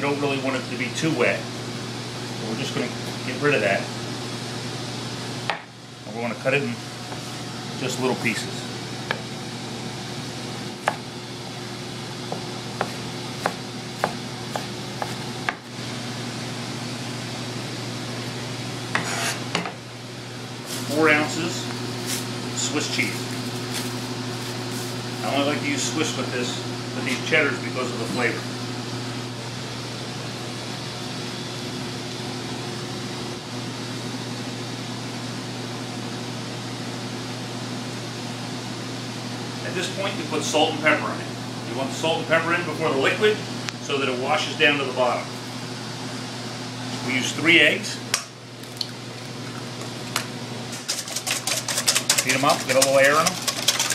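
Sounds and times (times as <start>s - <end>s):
ventilation fan humming: 0.0s - 53.9s
knife chopping on plastic board: 12.3s - 15.6s.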